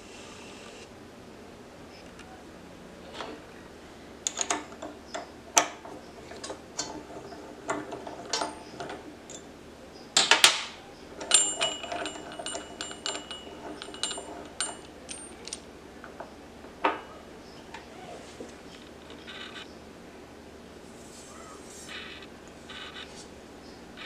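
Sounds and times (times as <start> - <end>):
allen key clicking on bolt: 4.2 - 9.4
high metallic ringing: 10.2 - 17.7.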